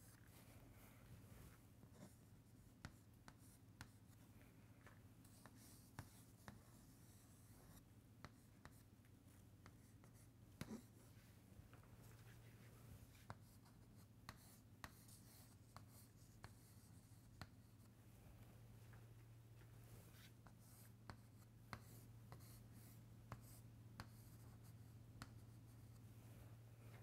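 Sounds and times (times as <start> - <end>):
low room hum: 0.0 - 27.0
chalk writing on chalkboard: 1.9 - 4.2, 5.2 - 8.9, 9.6 - 11.0, 13.2 - 17.9, 20.1 - 26.0.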